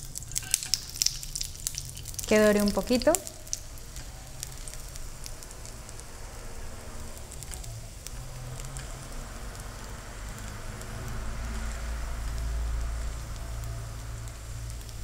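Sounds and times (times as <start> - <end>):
oil popping and spitting: 0.0 - 6.0
food sizzling in hot oil: 0.0 - 15.0.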